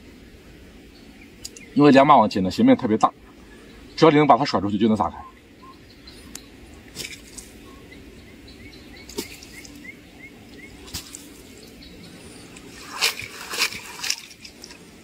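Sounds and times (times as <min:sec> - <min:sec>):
light water splashes: 0:06.2 - 0:07.6, 0:09.0 - 0:15.0
water pouring from a net: 0:10.8 - 0:11.6, 0:12.6 - 0:15.0.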